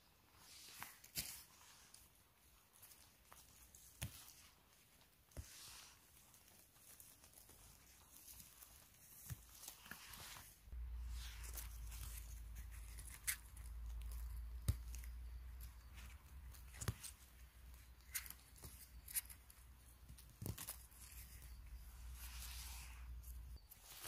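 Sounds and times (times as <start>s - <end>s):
low steady rumble: 10.8s - 14.3s.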